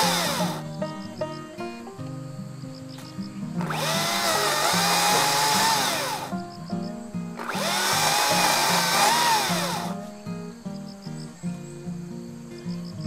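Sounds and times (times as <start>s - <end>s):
power tool motor revving: 0.0s - 0.6s, 3.6s - 6.3s, 7.4s - 10.0s.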